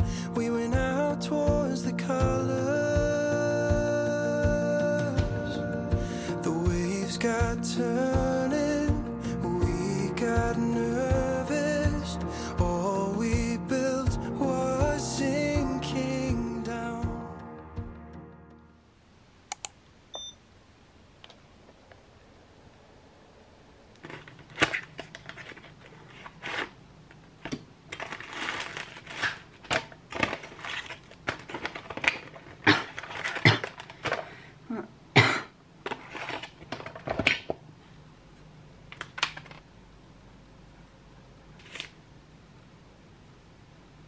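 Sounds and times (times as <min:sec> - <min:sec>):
paper rustling: 0:24.0 - 0:34.4, 0:35.8 - 0:37.6, 0:41.6 - 0:42.0.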